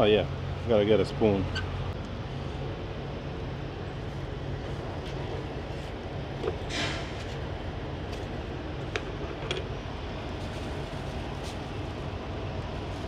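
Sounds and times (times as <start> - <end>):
short scrape: 6.7 - 7.3.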